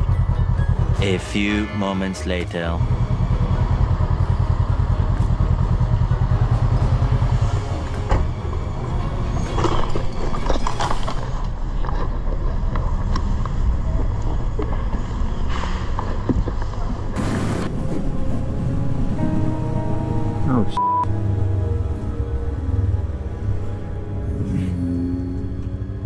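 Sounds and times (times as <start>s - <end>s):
motorcycle engine idling: 0.0s - 1.1s, 2.8s - 7.6s.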